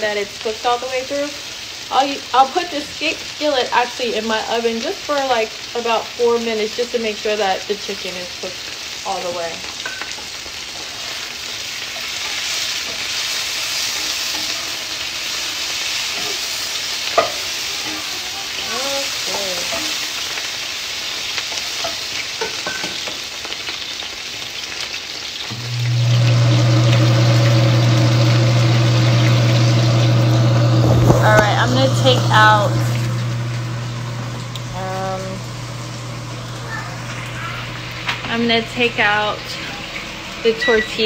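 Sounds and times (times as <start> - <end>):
chicken sizzling in a skillet: 0.0 - 41.0
low motor hum: 25.5 - 41.0.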